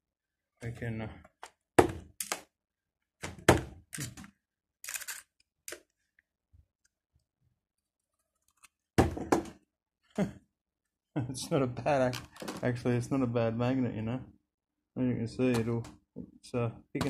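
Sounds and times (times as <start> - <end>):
hard objects knocking and clunking: 9.0 - 9.6.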